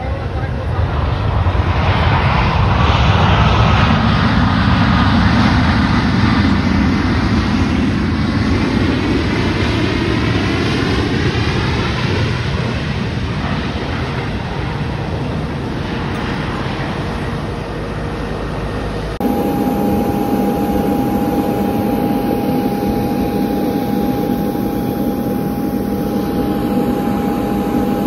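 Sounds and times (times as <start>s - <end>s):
jet engines passing: 0.0s - 28.0s
high whine: 17.3s - 28.0s.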